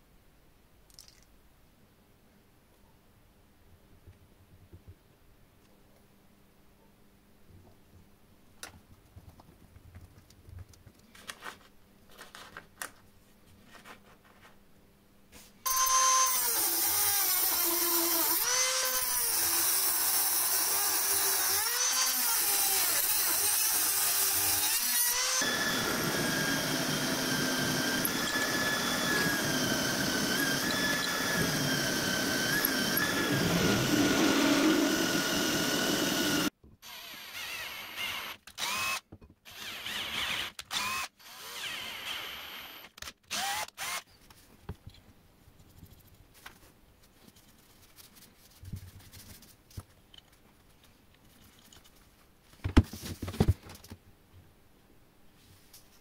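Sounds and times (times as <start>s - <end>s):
power tool cutting with whine: 15.7s - 44.0s.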